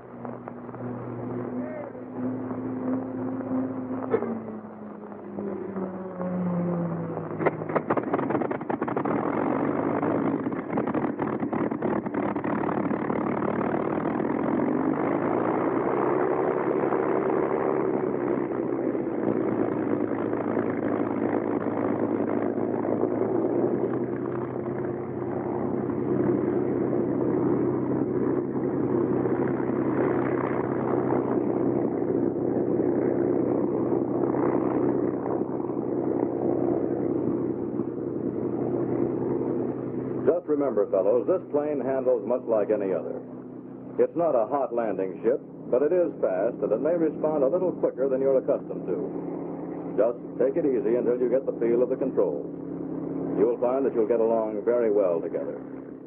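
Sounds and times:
aircraft engine starting and running: 0.0s - 56.0s
engine coughs and pops: 4.0s - 4.5s, 7.4s - 9.4s.

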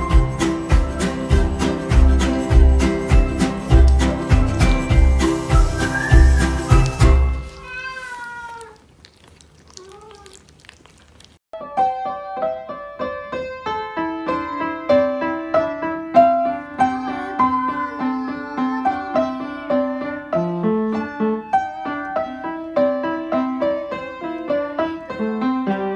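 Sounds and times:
upright piano playing: 0.0s - 7.6s, 11.6s - 25.9s.

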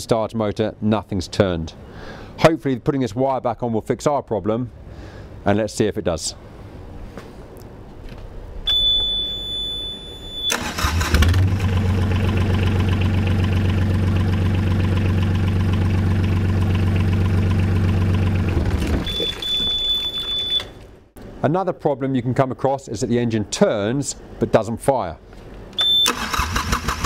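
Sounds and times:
alarm buzzer beeping: 8.7s - 10.6s, 19.0s - 20.8s, 25.8s - 26.2s
starter motor cranking: 10.5s - 11.9s, 26.0s - 27.0s
diesel engine idling: 10.5s - 18.8s.

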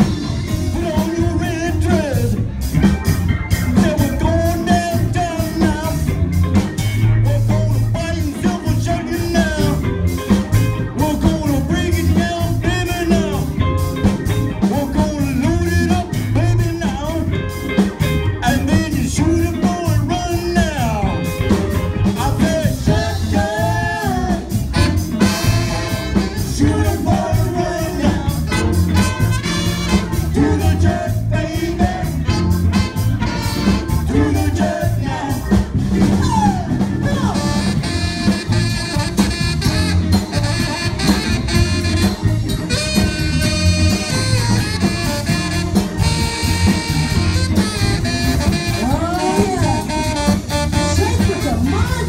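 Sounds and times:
electric guitar: 0.0s - 52.0s
horn section: 20.8s - 52.0s.

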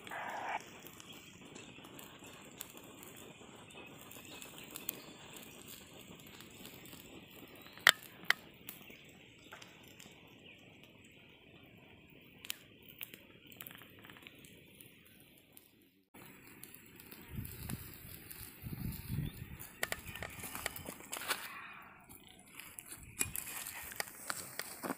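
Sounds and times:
sharp pops from fire: 0.0s - 24.9s
twig fire crackling: 0.0s - 24.9s
burning sticks pushed aside: 16.4s - 24.9s.

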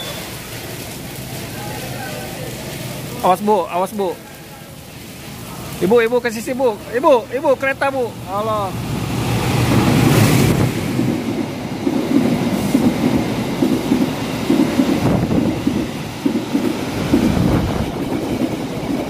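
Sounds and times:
diesel locomotive passing: 0.0s - 19.0s
train wheels clattering over rail joints: 9.6s - 19.0s.

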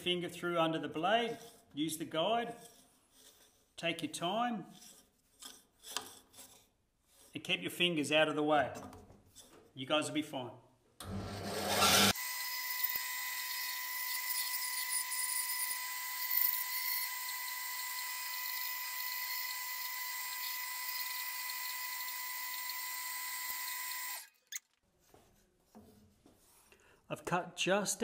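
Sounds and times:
bandsaw cutting wood: 11.0s - 24.4s.

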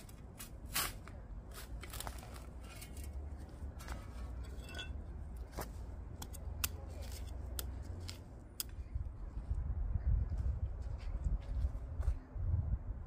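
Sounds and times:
gardening tools clicking in soil: 6.2s - 8.8s.

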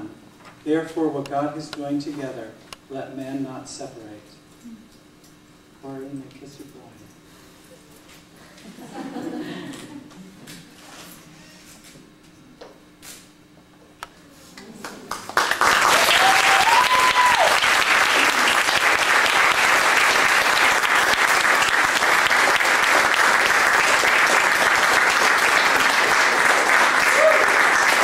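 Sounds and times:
audience applause: 14.6s - 28.0s.

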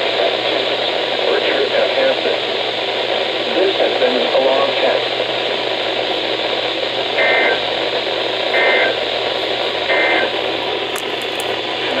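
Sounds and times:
radio static hiss: 0.0s - 12.0s
two-tone data bursts: 7.2s - 7.7s, 8.5s - 9.0s, 9.8s - 10.4s.

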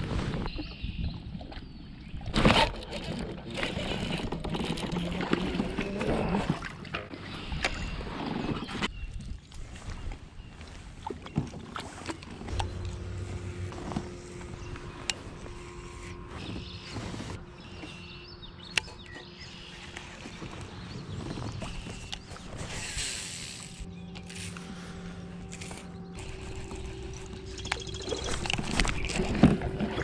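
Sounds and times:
water noise: 0.0s - 30.0s
fishing gear clicks and knocks: 2.4s - 6.1s, 25.4s - 30.0s
loud rush of noise: 12.5s - 15.8s.

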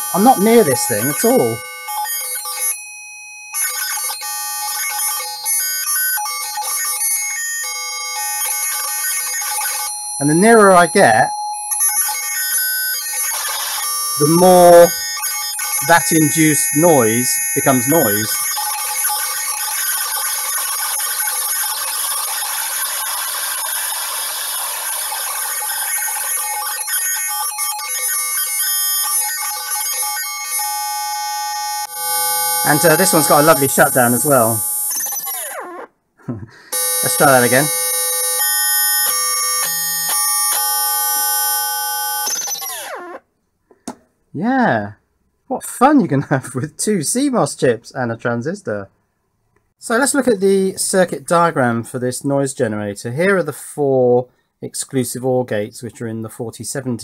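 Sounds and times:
buzzy electronic tones: 0.0s - 2.7s, 12.0s - 35.9s, 36.7s - 43.2s.

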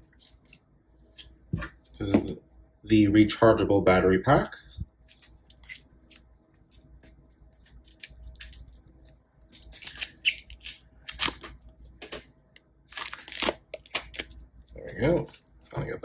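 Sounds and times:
plastic wrapper crinkling: 5.0s - 12.2s, 12.9s - 15.6s.

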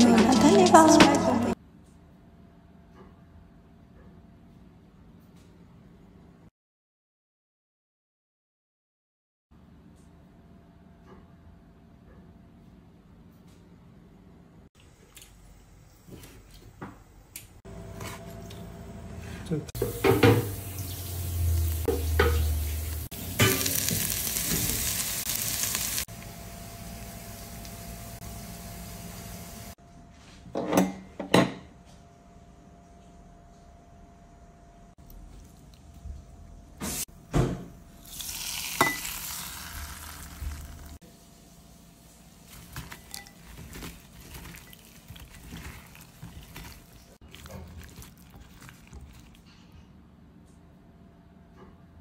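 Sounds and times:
oil sizzling in a pan: 19.8s - 29.8s, 38.0s - 47.6s
wet squishing of food mixing: 42.3s - 49.7s.

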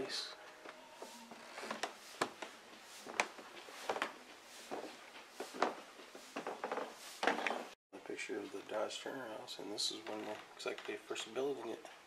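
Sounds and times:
footsteps on carpeted stairs: 0.6s - 7.7s.

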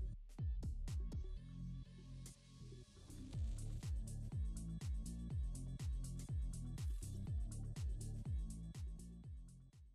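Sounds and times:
hi-hat ticks: 3.3s - 9.4s.

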